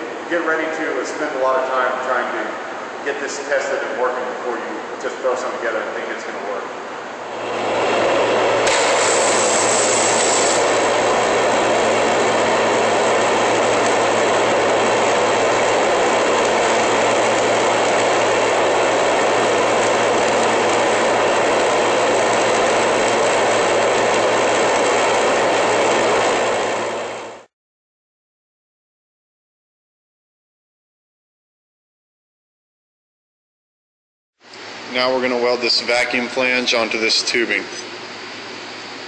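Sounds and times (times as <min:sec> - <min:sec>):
welding arc hissing and humming: 0:07.2 - 0:27.5.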